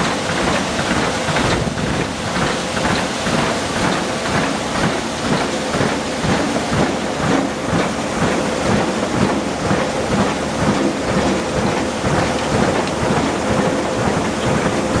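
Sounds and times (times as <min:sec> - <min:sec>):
machine hum: 0:00.0 - 0:15.0
water and gravel rushing rattle: 0:00.0 - 0:15.0.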